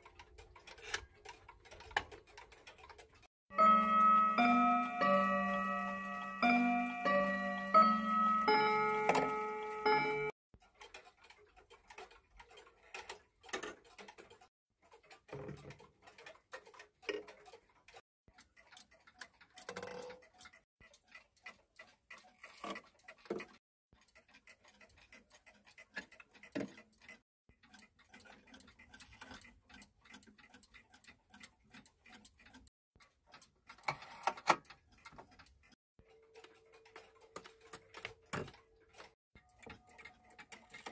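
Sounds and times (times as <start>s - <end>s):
clock ticking: 0.0s - 33.9s, 34.5s - 40.9s
clock mechanism clicking: 0.0s - 40.9s
clock chime rods ringing: 3.5s - 10.3s.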